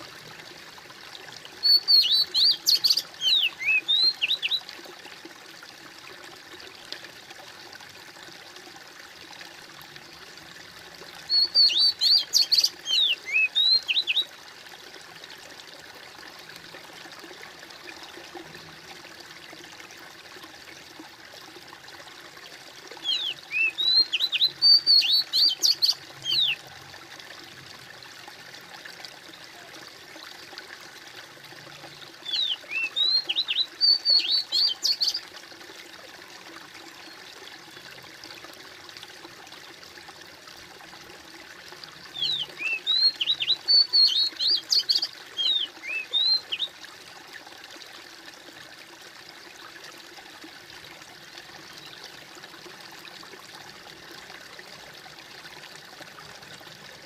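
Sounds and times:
stream trickling and splashing: 0.0s - 57.0s
songbird singing: 1.6s - 4.7s, 11.3s - 14.3s, 23.0s - 26.6s, 31.9s - 35.2s, 42.1s - 46.8s.

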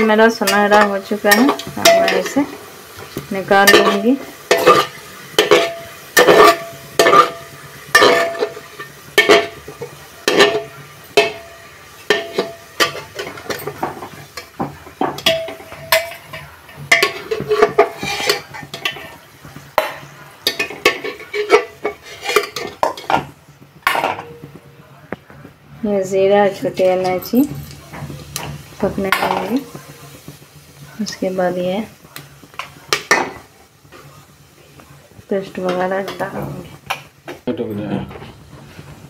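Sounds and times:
oil sizzling: 0.0s - 39.0s
metal spatula scraping a pot: 0.4s - 19.2s, 20.4s - 23.3s.

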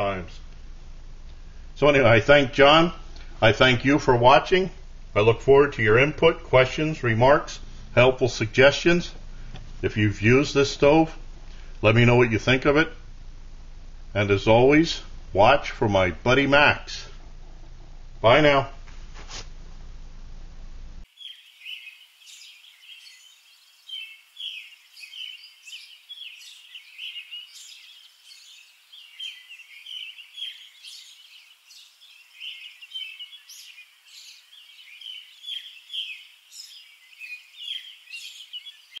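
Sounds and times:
birds chirping and calling: 21.1s - 39.0s.

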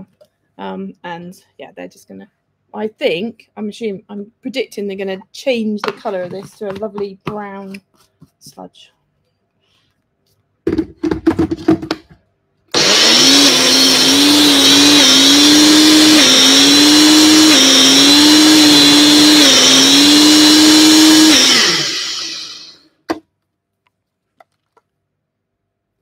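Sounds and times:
blender click: 12.7s - 22.8s
blender motor churning: 12.7s - 22.8s.

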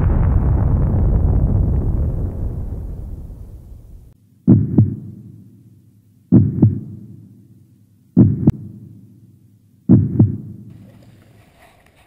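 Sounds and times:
deep heartbeat-like double thumps: 0.0s - 5.2s, 6.3s - 7.1s, 8.2s - 8.7s, 9.9s - 10.6s.

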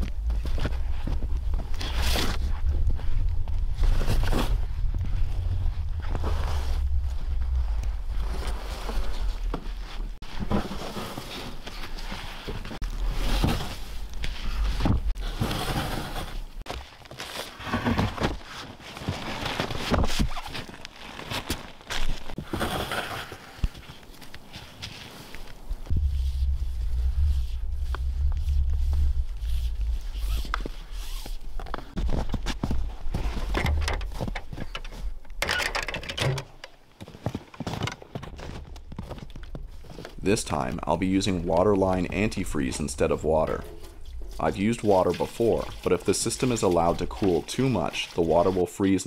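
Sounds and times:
low rumble: 0.0s - 10.2s, 25.7s - 35.4s, 39.7s - 45.9s
hose dragged over snow: 0.2s - 16.6s, 25.9s - 32.0s.

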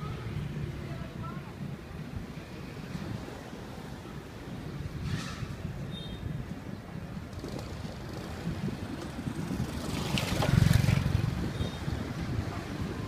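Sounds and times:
street noise: 0.0s - 13.0s
vehicle passing close by: 7.3s - 13.0s.

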